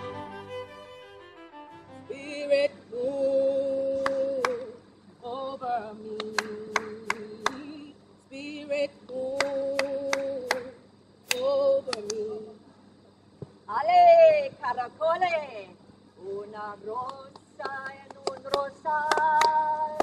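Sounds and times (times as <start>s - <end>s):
woman singing unaccompanied: 2.0s - 12.6s, 13.7s - 20.0s
hand claps: 4.0s - 4.7s, 6.1s - 7.7s, 9.4s - 10.7s, 11.3s - 12.3s, 17.0s - 20.0s.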